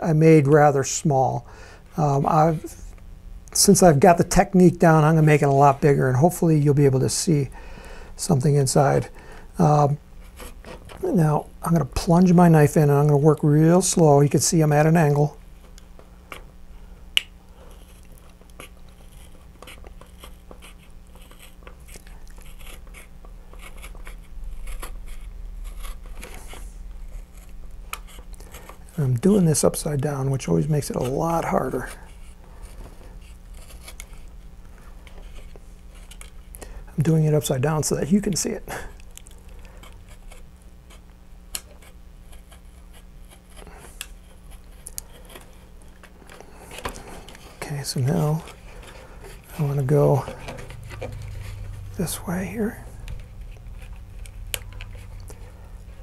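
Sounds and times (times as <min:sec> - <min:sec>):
knife blade scratching plastic: 0:17.6 - 0:29.0, 0:30.5 - 0:34.3, 0:39.2 - 0:41.0, 0:41.6 - 0:51.7.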